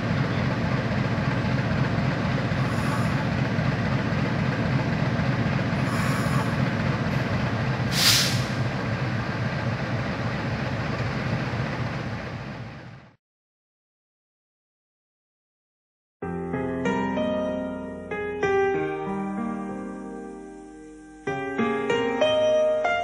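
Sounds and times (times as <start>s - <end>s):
diesel locomotive idling: 0.0s - 13.2s
air hiss: 2.6s - 3.2s, 5.8s - 6.6s, 7.9s - 8.7s.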